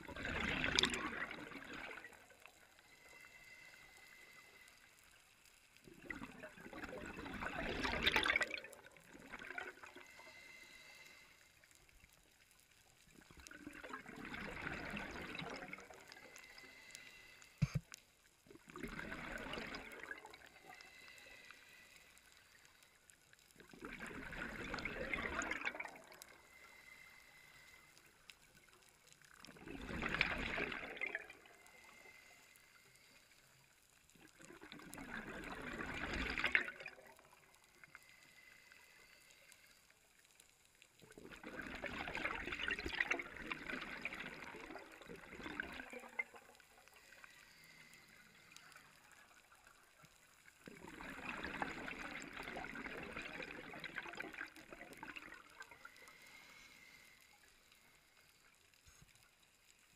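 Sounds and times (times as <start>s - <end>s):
underwater bubbling exhalation: 0.0s - 2.3s, 5.9s - 10.0s, 13.5s - 16.0s, 18.6s - 20.4s, 23.6s - 26.2s, 29.5s - 31.5s, 34.4s - 37.1s, 41.2s - 46.6s, 50.7s - 55.7s
regulator inhalations: 10.0s - 11.7s, 16.2s - 17.9s, 26.3s - 28.3s, 55.7s - 58.2s.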